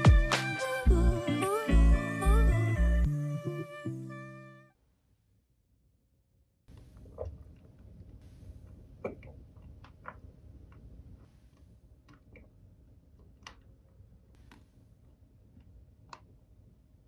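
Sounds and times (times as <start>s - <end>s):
small clicks and taps: 13.2s - 14.7s, 15.6s - 16.4s.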